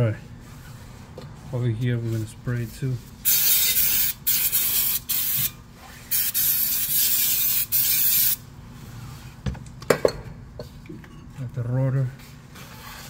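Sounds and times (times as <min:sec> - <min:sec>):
aerosol spraying: 0:03.3 - 0:05.5, 0:06.1 - 0:08.4.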